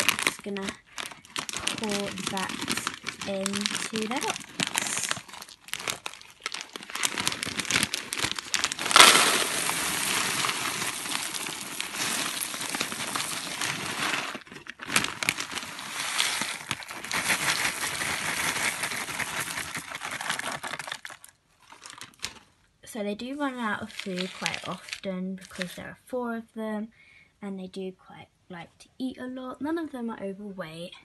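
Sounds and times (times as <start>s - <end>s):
seeds rattling into plastic tub: 0.0s - 21.3s, 23.9s - 25.6s
plastic bag crinkling: 0.0s - 22.6s, 23.8s - 25.8s.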